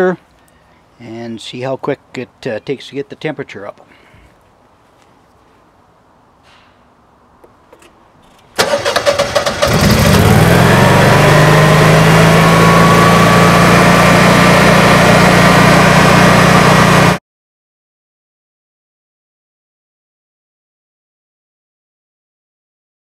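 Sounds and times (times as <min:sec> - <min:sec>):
engine whine: 0:08.2 - 0:17.2
generator engine starting and running: 0:08.5 - 0:17.2.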